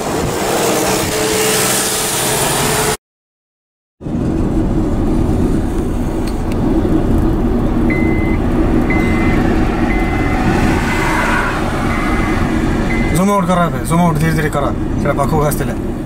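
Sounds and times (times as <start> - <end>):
car engine and tyre noise: 0.0 - 3.0, 4.0 - 16.0
high electronic beep: 7.9 - 13.4.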